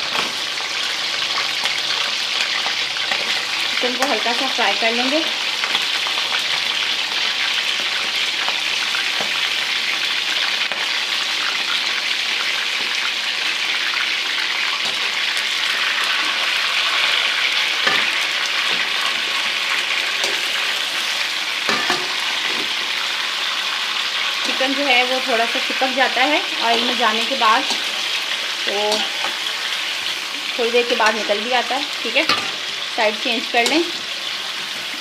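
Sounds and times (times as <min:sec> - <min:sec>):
chicken sizzling in ghee: 0:00.0 - 0:35.0.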